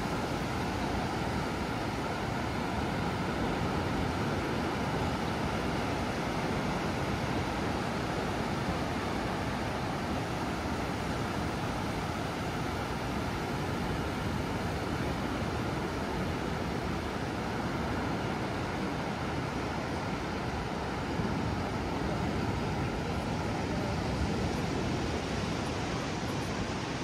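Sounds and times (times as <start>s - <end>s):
ocean surf roaring: 0.0s - 27.0s.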